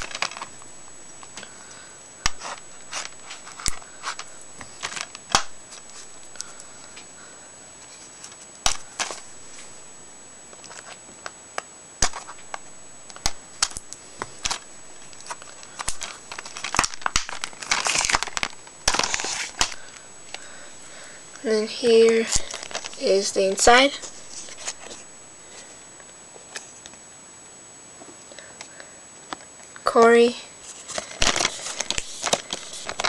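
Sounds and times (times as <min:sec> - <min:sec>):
plastic wrapping tearing and crinkling: 0:00.0 - 0:01.5, 0:02.2 - 0:07.0, 0:07.9 - 0:09.7, 0:12.0 - 0:21.1, 0:21.9 - 0:25.1, 0:30.7 - 0:33.0
sharp clicks and crackling: 0:13.1 - 0:20.4.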